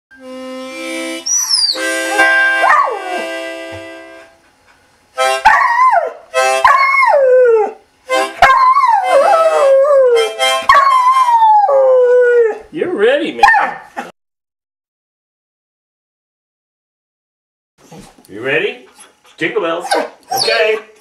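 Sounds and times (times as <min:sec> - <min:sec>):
harmonica chord: 0:00.1 - 0:04.5, 0:05.1 - 0:05.6, 0:06.3 - 0:06.9, 0:08.0 - 0:11.2
dog howling: 0:02.6 - 0:03.3, 0:05.4 - 0:07.8, 0:08.4 - 0:12.7, 0:19.8 - 0:20.9.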